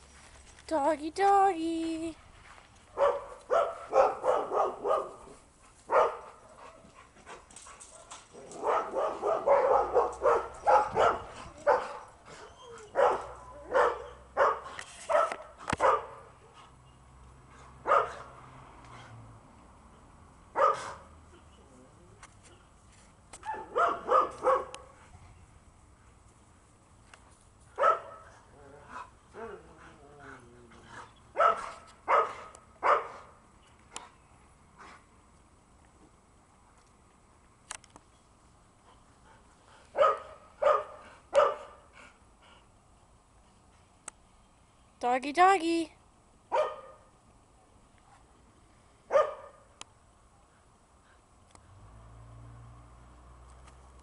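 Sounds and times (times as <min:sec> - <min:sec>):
dog barking: 0:03.0 - 0:05.3, 0:05.9 - 0:06.8, 0:08.0 - 0:12.1, 0:12.9 - 0:16.3, 0:17.8 - 0:18.3, 0:20.6 - 0:21.1, 0:23.4 - 0:25.0, 0:27.8 - 0:28.2, 0:31.4 - 0:33.3, 0:40.0 - 0:41.8, 0:46.5 - 0:47.1, 0:49.1 - 0:49.7
dog whining: 0:12.3 - 0:13.0.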